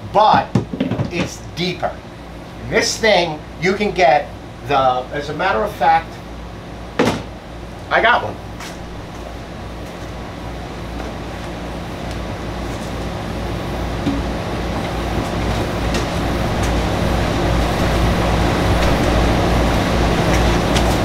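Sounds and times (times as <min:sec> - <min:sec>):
low hum: 0:07.3 - 0:21.0.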